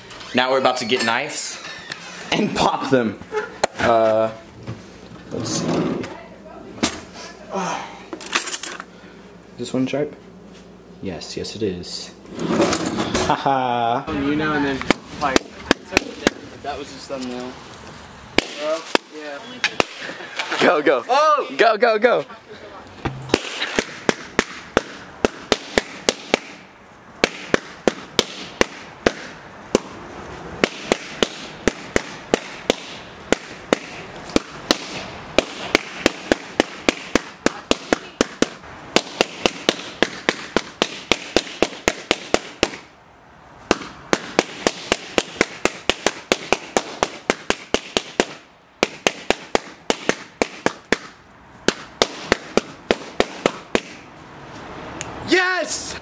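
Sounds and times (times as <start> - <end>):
balloons popping: 18.3 - 19.1, 19.7 - 20.1, 23.0 - 30.0, 30.6 - 42.9, 43.7 - 54.0.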